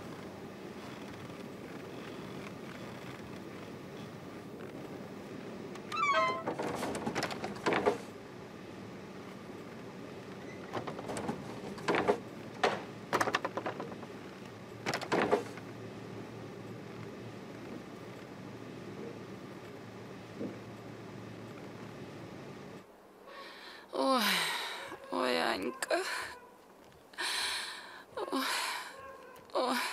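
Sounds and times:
wooden gate creaking and knocking: 0:05.8 - 0:08.1, 0:10.4 - 0:14.2, 0:14.8 - 0:15.6
gate hinges squealing: 0:05.9 - 0:06.9.

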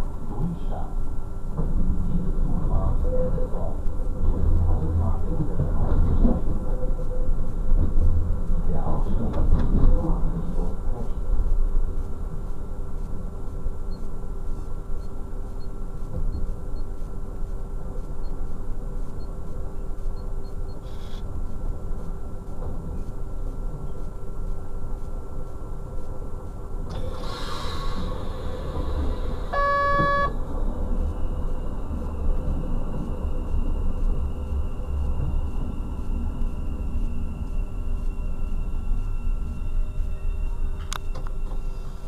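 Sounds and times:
diesel railcar rumble: 0:00.0 - 0:14.4, 0:16.2 - 0:42.0
faint high whine: 0:10.0 - 0:42.0
short burst of hiss: 0:27.0 - 0:29.3
short horn toot: 0:29.5 - 0:30.4.

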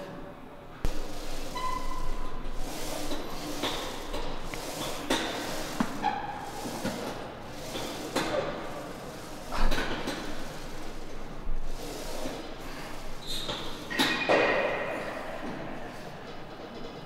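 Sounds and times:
room noise: 0:00.0 - 0:17.0.

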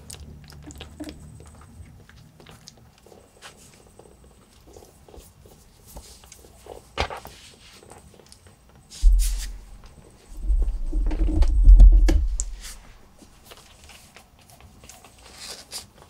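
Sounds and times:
scratching and rustling on plastic mat: 0:00.6 - 0:16.0
loud low rumble: 0:09.0 - 0:13.0.

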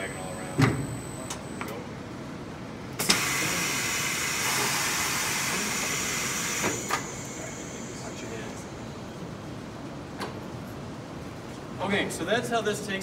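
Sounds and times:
pneumatic valve clicks: 0:03.0 - 0:03.4.

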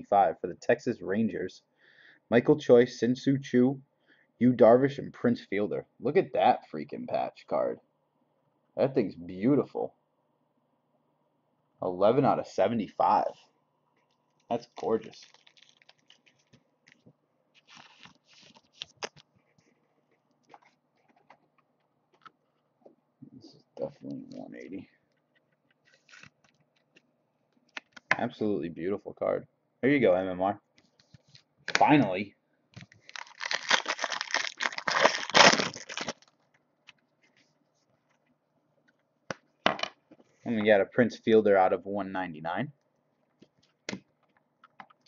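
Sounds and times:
card rustling and clicking: 0:14.1 - 0:22.4, 0:25.2 - 0:28.2
wrapper crinkling and tearing: 0:14.5 - 0:17.0, 0:17.6 - 0:19.2, 0:32.8 - 0:36.4.

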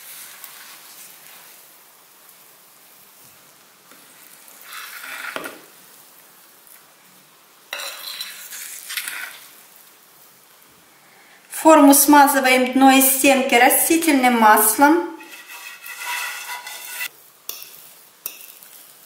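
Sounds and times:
fork scraping glass bowl: 0:07.8 - 0:09.4, 0:15.2 - 0:17.1
fork stirring sticky dough: 0:15.2 - 0:18.7.

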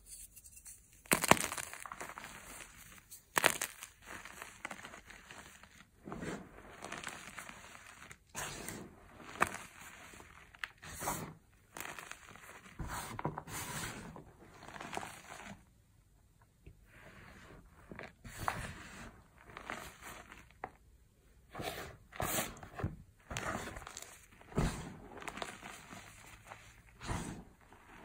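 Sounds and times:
chalk crunching in hands: 0:00.0 - 0:05.7.

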